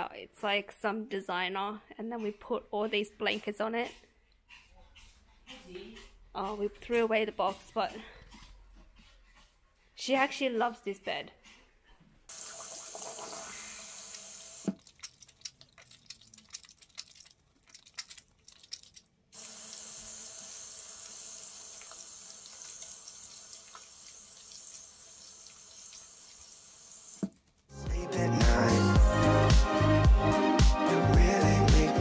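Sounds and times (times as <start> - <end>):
tap water running into sink: 12.3 - 27.3
water splashes and clicks: 14.0 - 19.1, 21.7 - 26.4.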